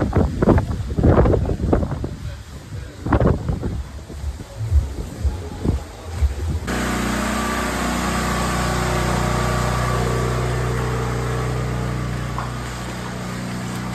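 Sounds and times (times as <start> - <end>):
small engine humming: 6.7 - 13.9.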